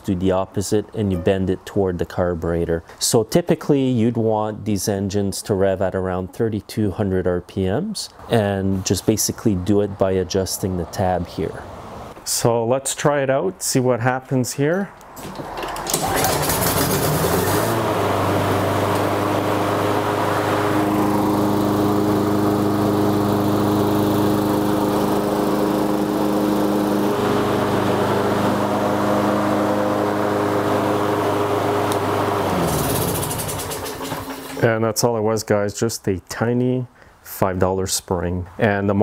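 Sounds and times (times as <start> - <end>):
lawn mower engine running: 15.2 - 34.6.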